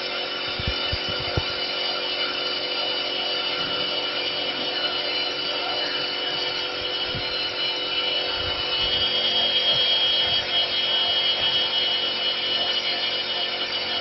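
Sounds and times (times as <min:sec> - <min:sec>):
high spindle whine: 0:00.0 - 0:14.0.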